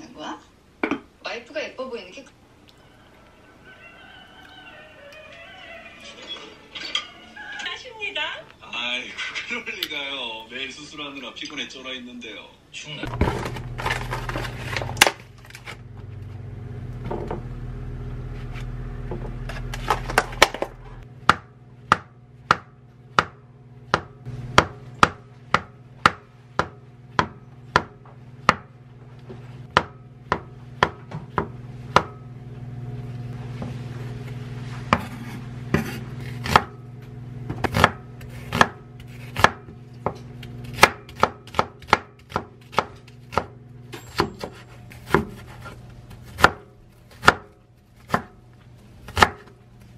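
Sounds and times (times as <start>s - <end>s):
steady low hum: 13.0s - 49.9s
knife chopping onion: 19.5s - 28.7s, 29.7s - 32.3s, 34.9s - 36.8s, 37.4s - 48.4s, 49.0s - 49.6s
knife slicing on cutting board: 34.9s - 36.6s.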